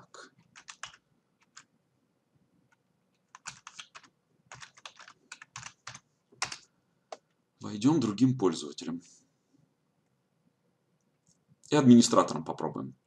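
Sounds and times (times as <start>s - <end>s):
keyboard keys clicking: 0.4s - 1.7s, 2.7s - 7.2s.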